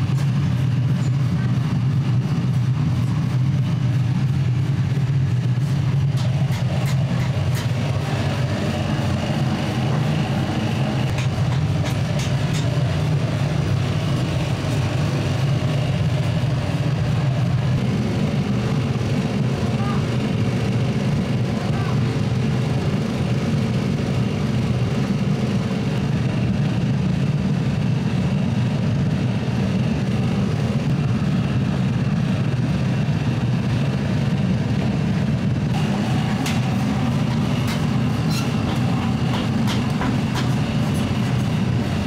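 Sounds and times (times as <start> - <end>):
low machine rumble: 0.0 - 42.0.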